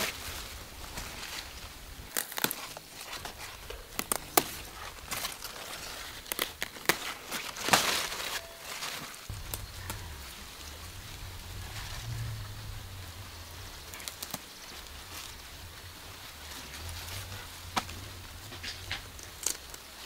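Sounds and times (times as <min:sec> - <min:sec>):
leaves rustling and crumpling: 0:00.0 - 0:20.0
green stalks snapping: 0:02.1 - 0:08.4, 0:13.9 - 0:15.4, 0:17.7 - 0:20.0.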